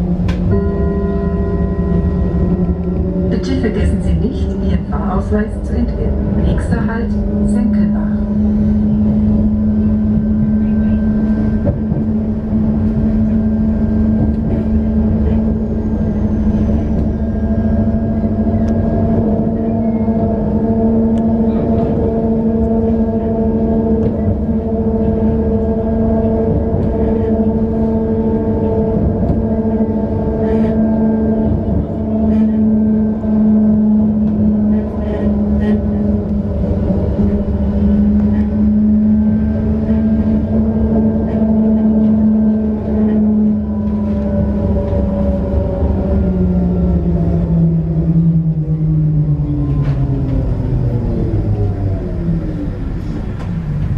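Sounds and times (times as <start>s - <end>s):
tram drive humming: 0.0s - 53.9s
wheels rumbling on rails: 0.0s - 53.9s.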